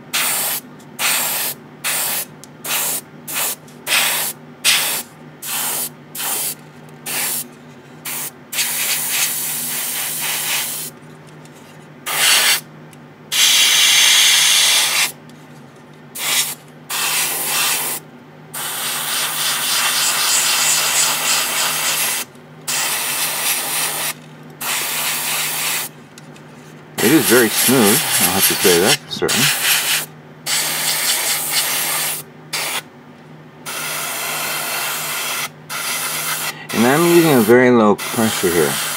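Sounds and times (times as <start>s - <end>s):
steady low hum: 0.0s - 38.9s
airbrush spraying hiss: 0.1s - 7.4s, 8.0s - 10.9s, 16.2s - 18.0s, 18.6s - 25.9s, 27.0s - 32.8s, 33.7s - 38.9s.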